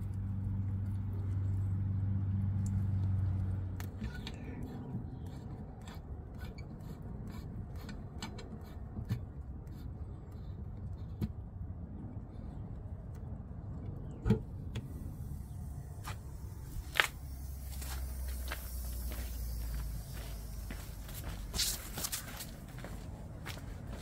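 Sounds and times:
metallic clicks of hose fittings: 5.3s - 9.8s.

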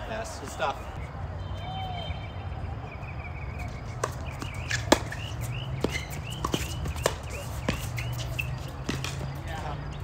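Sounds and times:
rackets striking tennis ball: 3.6s - 9.4s
tennis ball bouncing: 3.6s - 9.4s.

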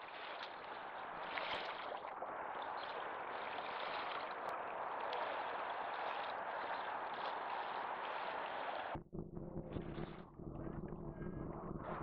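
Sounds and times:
small waves lapping: 0.0s - 9.0s.

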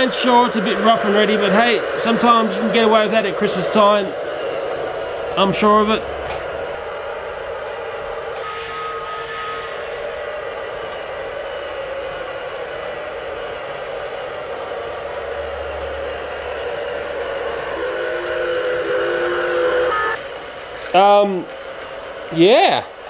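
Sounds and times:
toy train motor and wheels: 0.0s - 23.0s
short high squeak: 6.1s - 10.8s.

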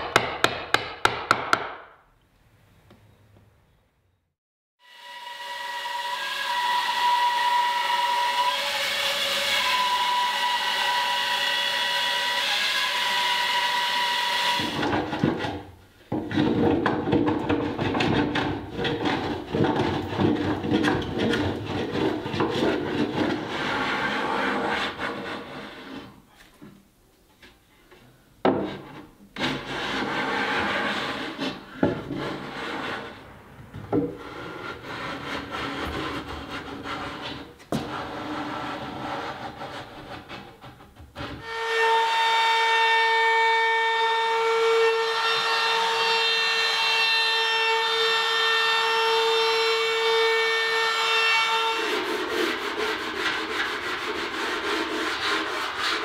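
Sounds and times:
shop machine whining: 4.8s - 14.8s
rubbing and scraping on wood: 14.7s - 26.8s, 28.5s - 41.4s, 51.8s - 56.0s
hand plane shaving wood: 16.3s - 26.1s, 29.4s - 33.2s, 34.0s - 41.4s, 51.7s - 56.0s.

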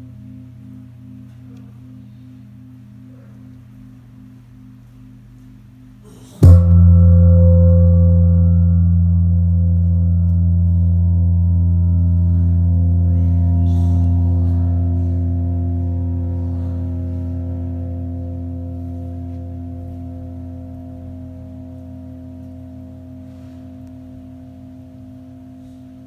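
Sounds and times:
large gong ringing: 6.4s - 26.0s.

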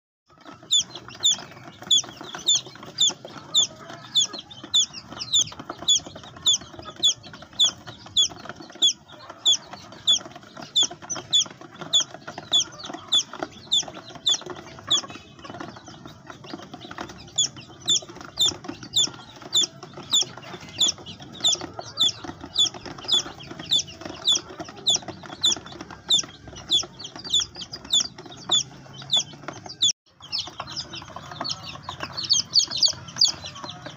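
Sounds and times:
baby chick peeping loudly: 0.3s - 33.9s.

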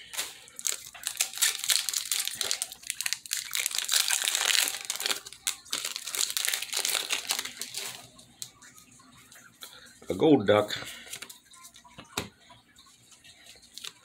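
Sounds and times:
foil wrapper crinkling and tearing: 0.0s - 8.5s, 13.5s - 14.0s.

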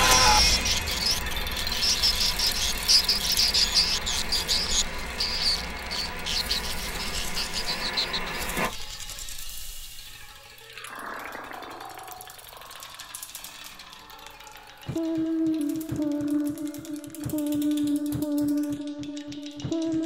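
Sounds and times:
insects chirping: 0.0s - 14.1s.

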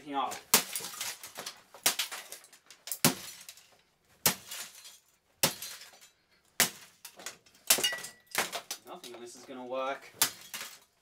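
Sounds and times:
blows smashing plastic electronics: 0.4s - 8.8s.

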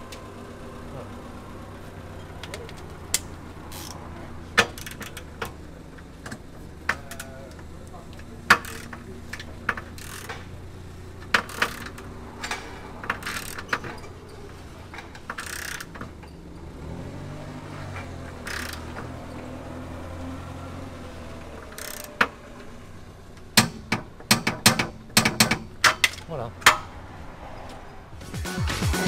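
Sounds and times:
torque wrench ratchet clicking: 3.2s - 4.0s, 8.5s - 9.0s, 9.8s - 10.4s, 11.3s - 12.1s, 13.2s - 13.8s, 15.3s - 16.0s, 18.4s - 18.8s, 21.7s - 22.1s.

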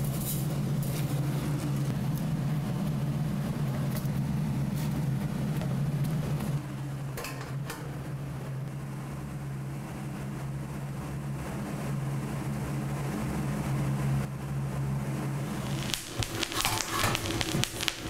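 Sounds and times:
gas burner roar: 0.0s - 18.0s.

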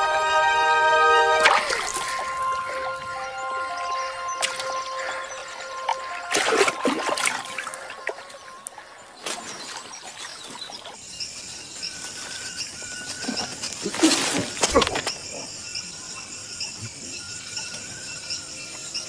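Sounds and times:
insects chirping: 0.0s - 19.0s.

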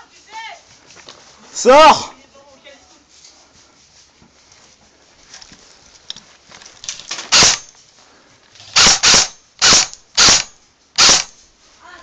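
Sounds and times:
faint rustling of movement: 0.0s - 8.8s, 10.5s - 12.0s
airsoft rifle shots: 7.3s - 7.7s, 8.7s - 11.4s.

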